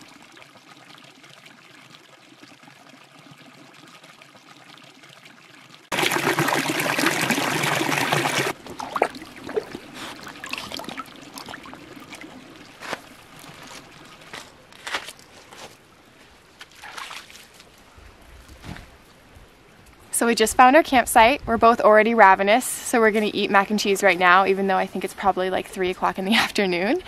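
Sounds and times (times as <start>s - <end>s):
creek trickling over rocks: 0.0s - 18.2s
footsteps on stony creek bed: 8.5s - 17.7s.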